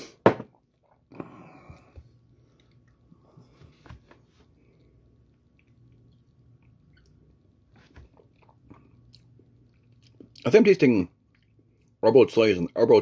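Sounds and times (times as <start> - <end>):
faint low hum: 0.5 - 13.0
wet chewing mouth clicks: 4.8 - 7.4, 11.2 - 12.0.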